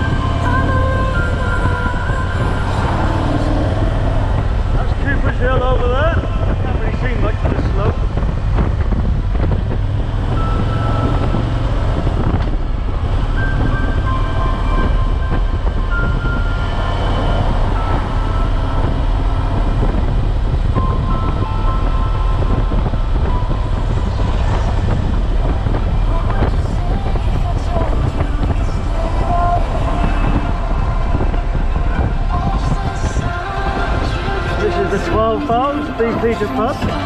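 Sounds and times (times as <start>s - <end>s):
motorcycle engine running: 0.0s - 37.0s
wind noise: 0.0s - 37.0s
faint music: 10.4s - 37.0s.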